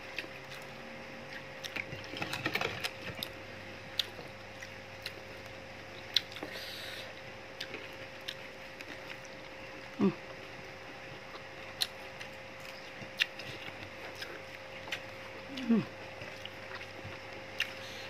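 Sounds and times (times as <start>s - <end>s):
faint steady hum: 0.0s - 18.0s
chewing smacks: 6.0s - 6.6s, 11.3s - 17.9s.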